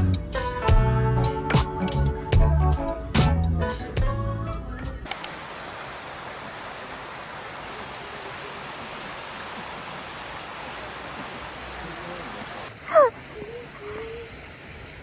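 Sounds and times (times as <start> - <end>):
soft guitar music: 0.0 - 5.1
sharp clicks: 5.1 - 5.4
water rushing over rocks: 5.1 - 15.0.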